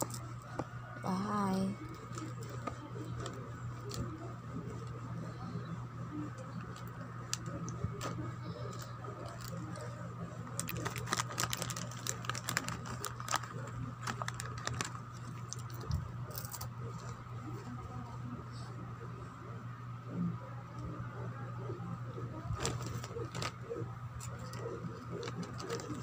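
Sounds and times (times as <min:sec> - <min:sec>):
plastic snack packet crinkling: 0:06.5 - 0:09.9, 0:10.5 - 0:16.7, 0:22.6 - 0:23.6, 0:24.2 - 0:26.0.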